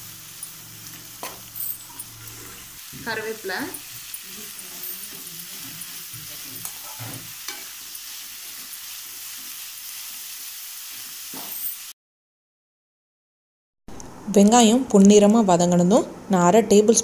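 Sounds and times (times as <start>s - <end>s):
onions sizzling in hot oil: 0.0s - 12.0s
metal spoon scraping pan: 3.7s - 7.8s.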